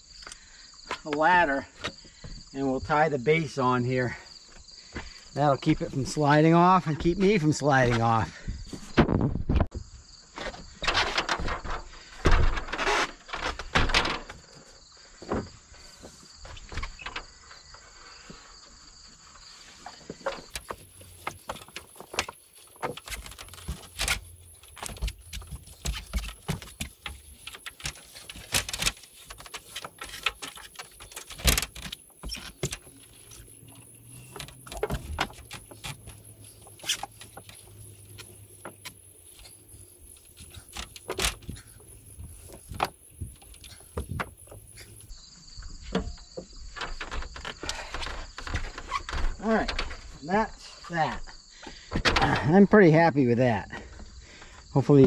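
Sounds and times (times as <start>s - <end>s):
rope handling noise: 19.7s - 45.1s, 45.9s - 50.3s.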